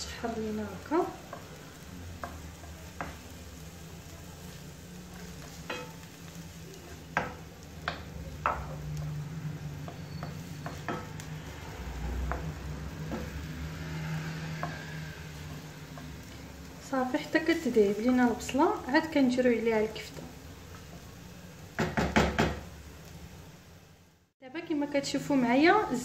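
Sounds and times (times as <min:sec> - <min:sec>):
onion sizzling in oil: 0:00.0 - 0:26.0
spatula scraping and tapping pan: 0:01.2 - 0:03.7, 0:04.4 - 0:06.5, 0:07.1 - 0:16.7.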